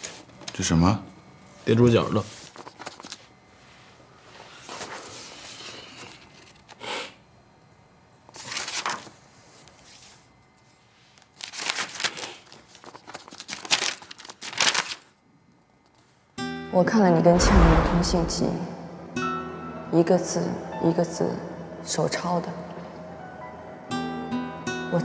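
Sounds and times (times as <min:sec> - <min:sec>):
paper pages rustling: 0:02.1 - 0:03.3, 0:04.6 - 0:06.8, 0:08.3 - 0:10.3, 0:11.0 - 0:15.1.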